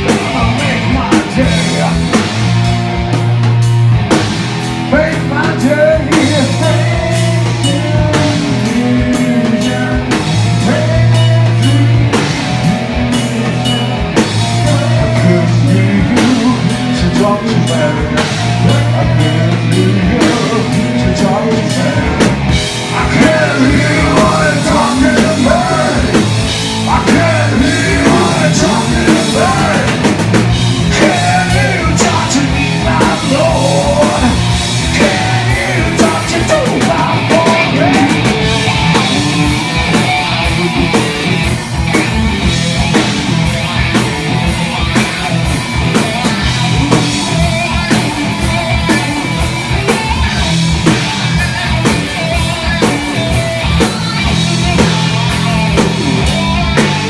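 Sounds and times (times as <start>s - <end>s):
distorted electric guitar: 0.0s - 57.0s
drum kit: 0.0s - 57.0s
person singing: 4.9s - 30.2s, 30.8s - 39.6s.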